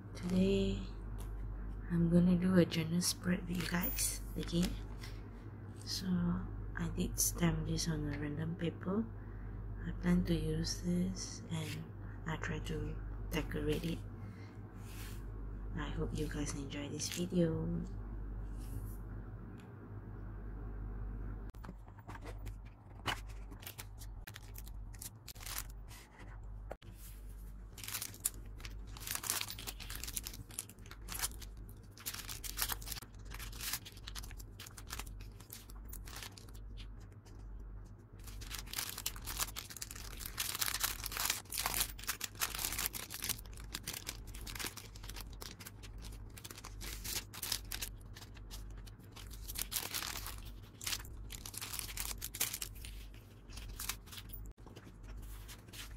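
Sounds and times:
steady low hum: 0:00.0 - 0:55.9
paper and plastic crinkling: 0:21.6 - 0:55.9.

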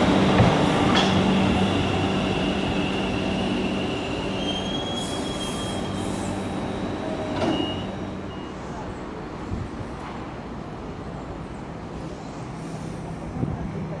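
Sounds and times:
train rail and wheel noise: 0:00.0 - 0:14.0
high wheel squeal: 0:03.0 - 0:06.5, 0:07.4 - 0:08.6.

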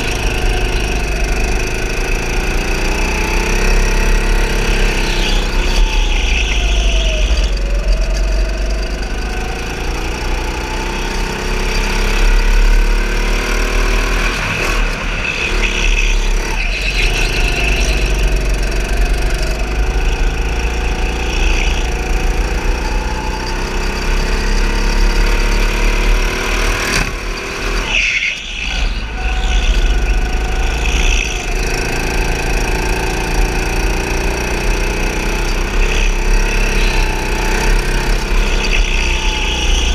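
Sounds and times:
go-kart motor running hard: 0:00.0 - 0:39.9
tyre squeals: 0:02.8 - 0:08.9, 0:27.2 - 0:39.9.

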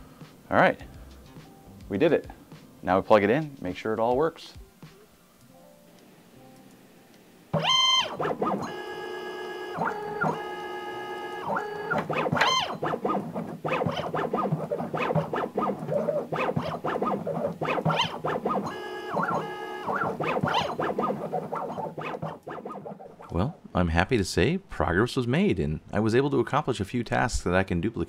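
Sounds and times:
stepper motor whine: 0:07.6 - 0:23.6
ticking and rattling: 0:11.4 - 0:23.4.

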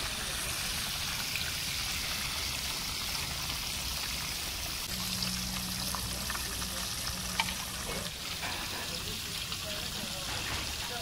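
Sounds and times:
meat sizzling in hot fat: 0:00.0 - 0:11.0.

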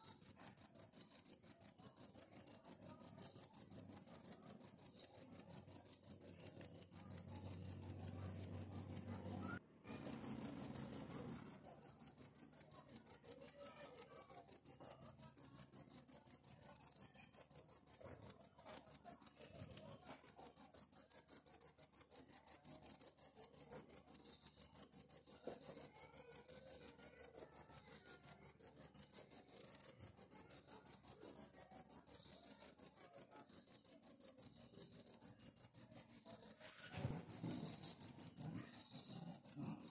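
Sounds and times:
cricket chirping: 0:00.0 - 0:39.9.

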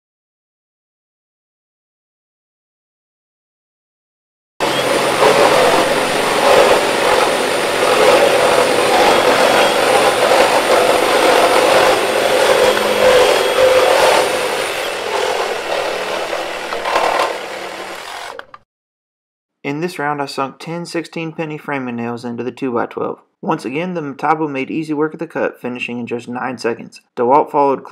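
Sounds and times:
reciprocating saws cutting wood: 0:04.6 - 0:18.6
thin high whine: 0:04.6 - 0:18.6.

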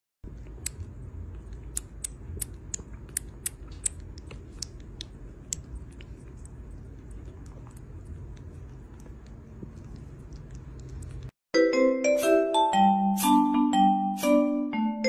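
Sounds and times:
low steady hum: 0:00.2 - 0:11.4
kitten suckling wet clicks: 0:00.3 - 0:11.4.

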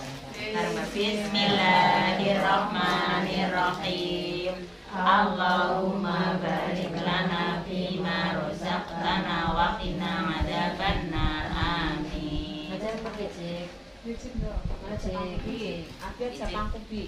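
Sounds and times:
women chanting in unison: 0:00.4 - 0:13.8.

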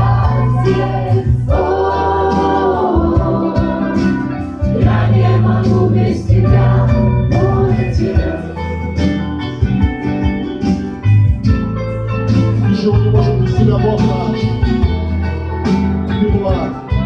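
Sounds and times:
group of people singing: 0:00.0 - 0:09.3
acoustic guitars strummed: 0:00.0 - 0:17.0
steady low bass: 0:00.0 - 0:17.0.

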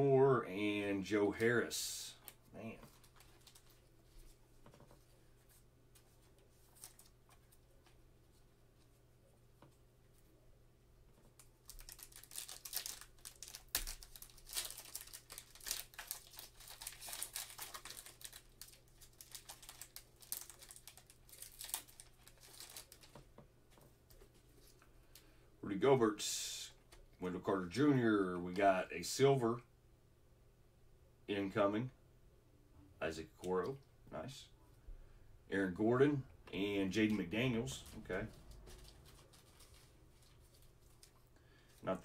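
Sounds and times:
wrapper crinkling and tearing: 0:06.6 - 0:07.1, 0:11.4 - 0:23.2, 0:38.2 - 0:41.3.

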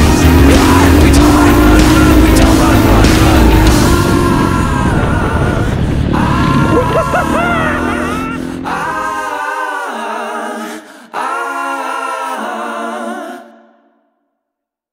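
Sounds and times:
low rumble: 0:00.0 - 0:09.3
a cappella sung vocal chords: 0:00.0 - 0:14.0.

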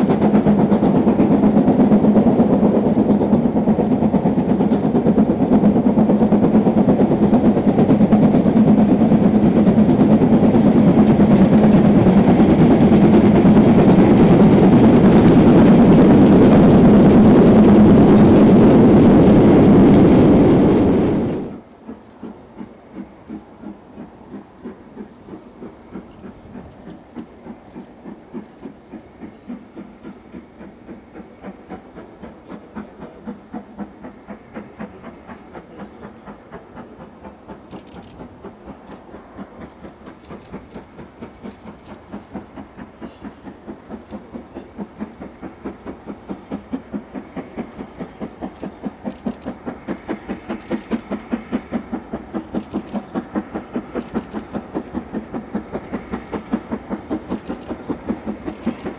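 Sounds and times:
steam locomotive exhaust beats: 0:00.0 - 0:58.9.

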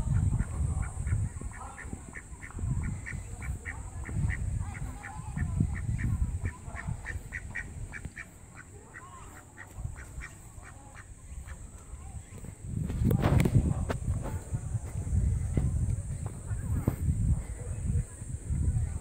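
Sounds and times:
duck quacking: 0:00.1 - 0:11.6.

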